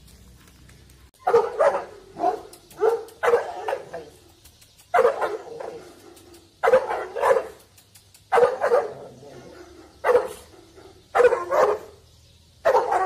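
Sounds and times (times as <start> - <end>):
large dog barking: 1.2 - 4.2, 4.9 - 7.6, 8.3 - 12.0, 12.6 - 13.0.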